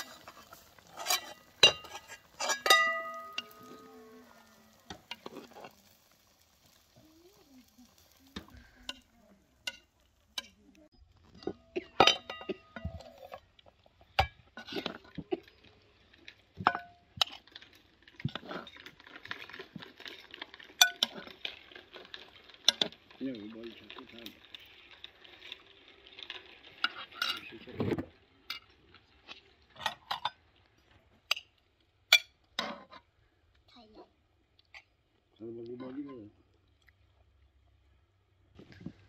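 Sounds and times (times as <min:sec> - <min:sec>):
metal spoon scraping in pot: 0:00.0 - 0:06.0, 0:14.6 - 0:15.6, 0:16.3 - 0:23.2, 0:23.9 - 0:27.7
spoon clinking against pot: 0:01.0 - 0:03.8.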